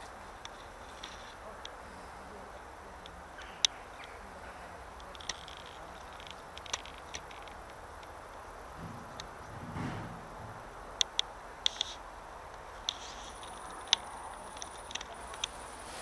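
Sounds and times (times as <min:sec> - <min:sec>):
high ticks and chirps: 0:02.5 - 0:09.6, 0:10.2 - 0:15.8.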